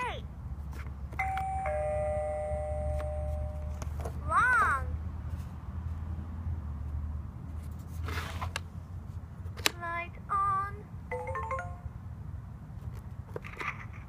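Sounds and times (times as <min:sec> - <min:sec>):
electronic toy jingle: 0:01.2 - 0:03.8, 0:11.1 - 0:12.0.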